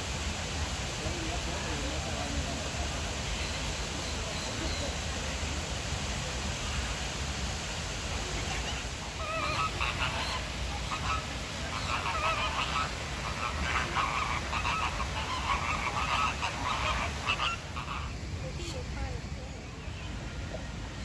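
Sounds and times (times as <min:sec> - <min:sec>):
flamingos honking: 0:08.0 - 0:18.9.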